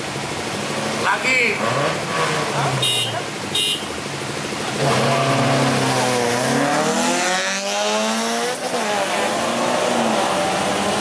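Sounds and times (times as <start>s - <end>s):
race car engine accelerating: 4.7s - 11.0s.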